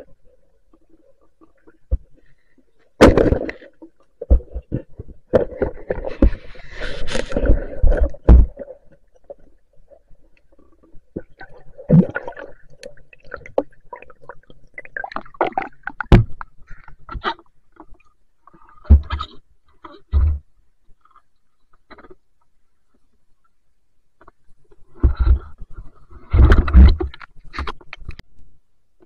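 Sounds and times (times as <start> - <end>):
underwater knocks and thumps: 1.5 - 2.3, 3.0 - 10.0, 10.9 - 18.0, 18.7 - 20.5, 24.2 - 28.2
gurgling churning water: 3.0 - 19.4.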